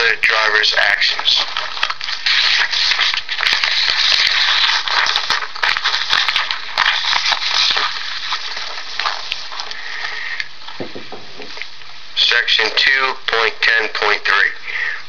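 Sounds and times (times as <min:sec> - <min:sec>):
paper rustling and crinkling: 0:00.0 - 0:11.7.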